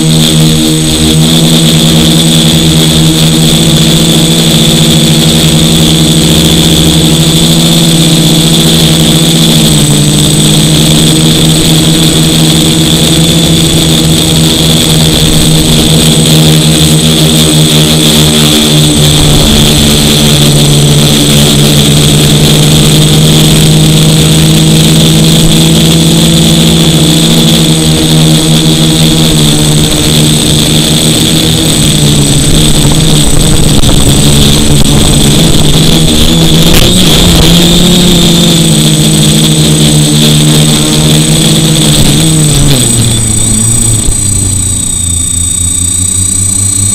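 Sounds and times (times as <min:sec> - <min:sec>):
quadcopter motors buzzing: 0:00.0 - 0:46.9
steady high whine: 0:00.0 - 0:46.9.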